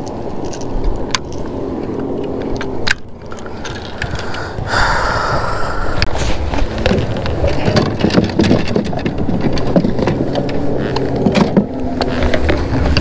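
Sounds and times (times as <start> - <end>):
fishing tackle clicks and knocks: 0.0 - 4.4, 6.8 - 13.0
steady low hum: 0.0 - 8.1.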